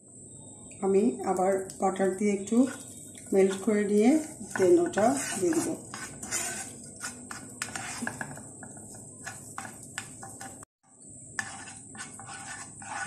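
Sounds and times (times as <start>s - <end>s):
spatula scraping and tapping: 2.4s - 10.7s, 11.3s - 13.0s.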